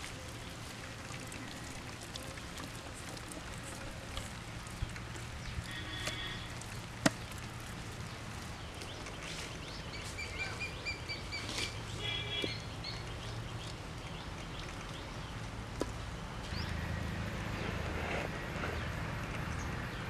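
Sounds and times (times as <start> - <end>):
small birds chirping: 3.2 - 16.8.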